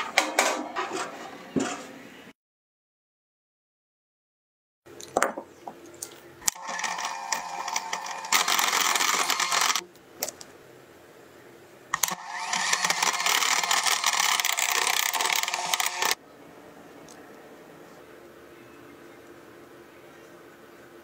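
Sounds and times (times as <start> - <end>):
electric hand mixer running: 6.5 - 9.8, 12.0 - 16.2.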